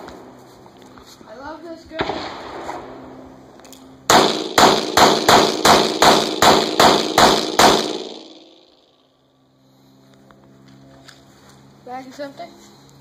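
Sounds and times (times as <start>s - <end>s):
gunshot echo: 2.0s - 3.0s, 4.1s - 8.8s
pistol shots: 2.0s - 3.0s, 4.1s - 8.8s.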